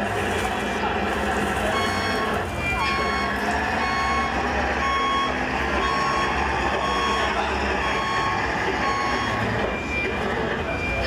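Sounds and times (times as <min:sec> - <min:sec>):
low engine-like hum: 0:00.0 - 0:11.0
reversing beeper: 0:01.6 - 0:11.0.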